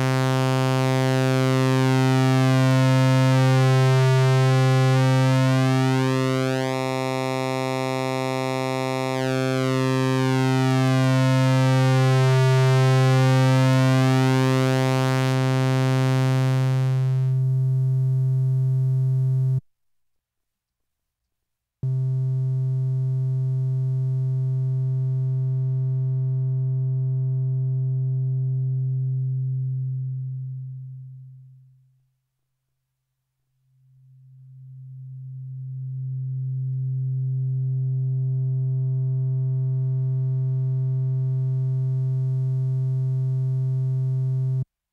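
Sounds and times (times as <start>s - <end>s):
analog synthesizer low note: 0.0s - 19.6s, 21.8s - 31.2s, 34.6s - 44.6s.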